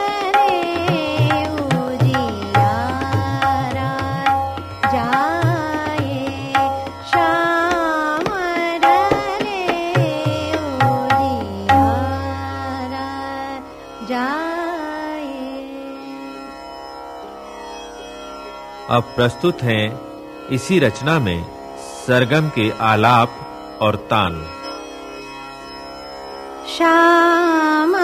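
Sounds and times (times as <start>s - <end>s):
tabla strokes: 0.0s - 13.0s
voice singing ornamented melody: 0.0s - 16.2s.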